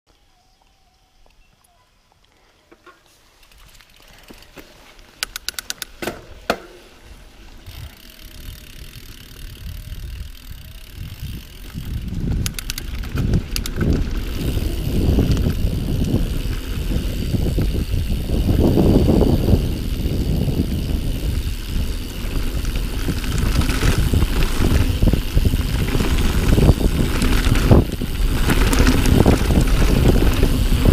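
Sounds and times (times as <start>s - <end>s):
bike metallic clicks and rattles: 2.7s - 30.9s
wind buffeting microphone: 7.0s - 30.9s.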